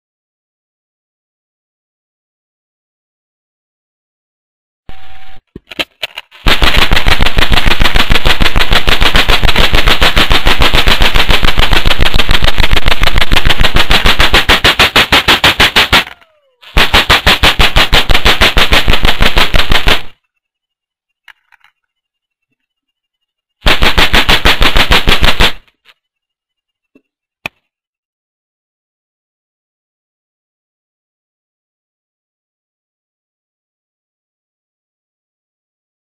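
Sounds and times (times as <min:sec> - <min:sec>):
electric sparks snapping: 0:05.8 - 0:20.2, 0:23.6 - 0:25.8.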